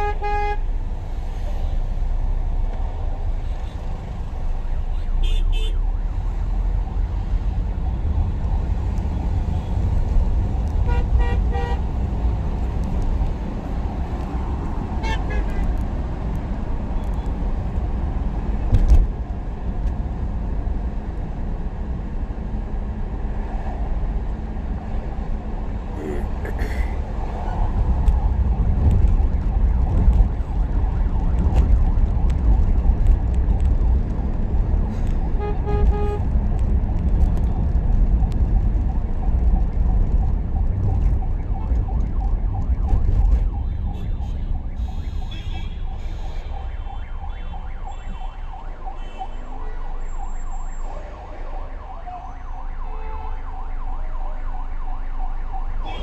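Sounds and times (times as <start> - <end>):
vehicle horns honking: 0.0 - 0.7, 35.4 - 36.2
road traffic rumble: 0.0 - 56.0.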